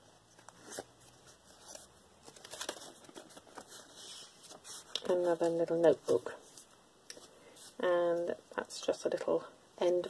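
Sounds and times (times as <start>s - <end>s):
paper rustling: 0.3s - 7.8s.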